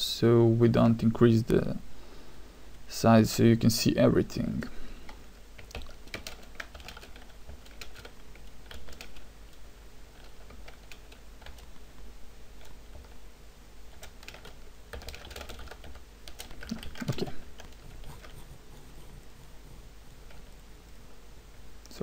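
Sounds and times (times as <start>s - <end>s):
computer keyboard typing: 5.6s - 9.3s, 10.1s - 11.8s, 13.9s - 20.6s.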